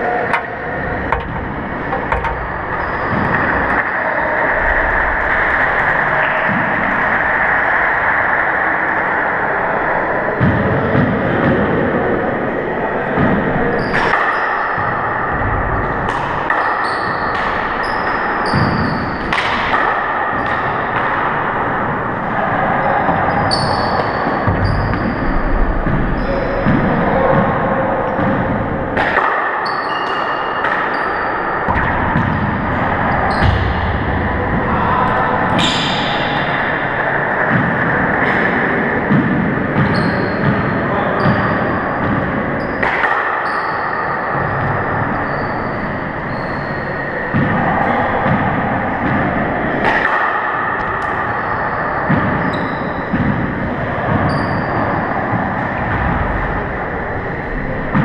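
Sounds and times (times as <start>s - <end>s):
loud steady rushing noise: 0.0s - 29.5s, 31.3s - 52.4s, 53.0s - 58.0s
shoes squeaking on wooden floor: 1.6s - 3.6s
shoe squeaks on hardwood floor: 2.7s - 3.5s, 16.8s - 19.1s, 39.9s - 40.4s.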